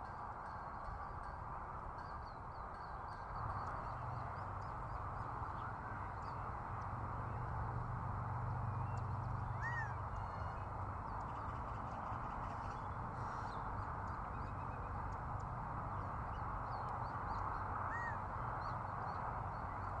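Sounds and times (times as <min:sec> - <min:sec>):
quail call: 0:09.6 - 0:10.3.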